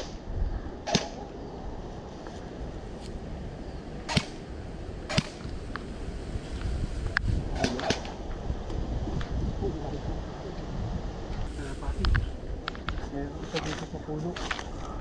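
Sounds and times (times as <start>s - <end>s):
airsoft gun shots: 0.8s - 1.2s, 4.1s - 4.4s, 5.1s - 5.4s, 7.6s - 8.1s.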